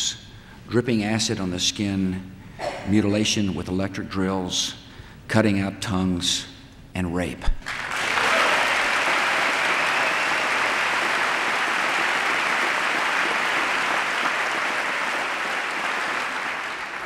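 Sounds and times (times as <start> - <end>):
large audience applauding: 7.6 - 17.0.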